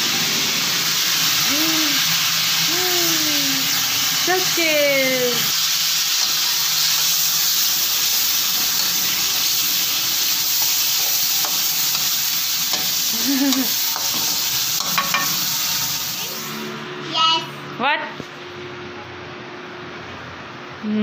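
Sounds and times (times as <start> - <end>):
food sizzling in hot oil: 0.0 - 17.4
spatula stirring in pan: 6.0 - 16.0.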